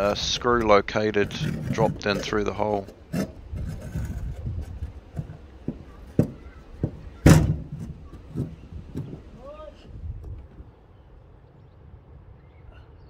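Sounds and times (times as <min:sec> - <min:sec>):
knocks and scraping on board: 0:00.0 - 0:09.4.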